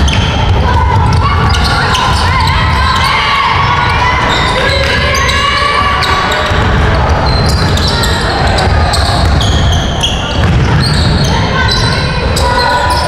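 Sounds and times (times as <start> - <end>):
shoe squeaks: 0.0 - 3.3, 7.2 - 13.0
basketball bouncing on court: 0.0 - 12.6
voices: 0.0 - 13.0.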